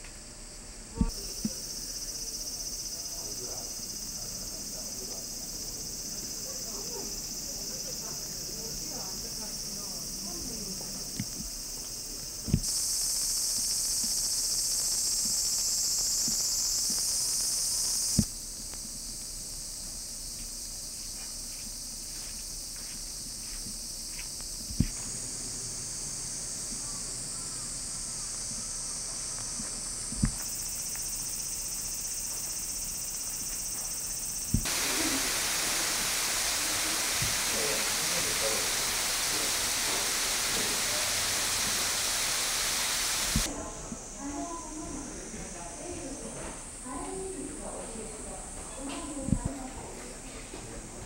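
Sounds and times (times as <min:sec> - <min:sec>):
high-pitched insect chorus: 0:00.5 - 0:51.0
small waterfall rushing: 0:34.5 - 0:43.5.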